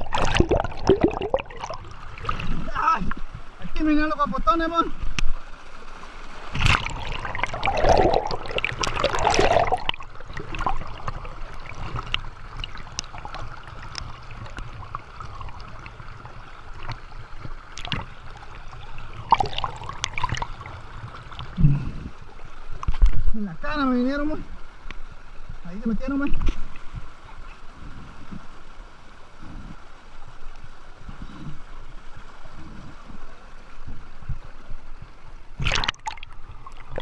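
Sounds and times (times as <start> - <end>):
water splashing: 0.0 - 23.4, 35.5 - 37.0
river current over logs: 0.0 - 37.0.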